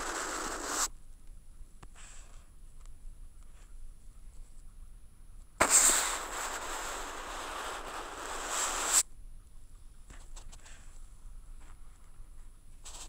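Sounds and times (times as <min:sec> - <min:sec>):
brush scraping across paper: 0:00.0 - 0:00.9.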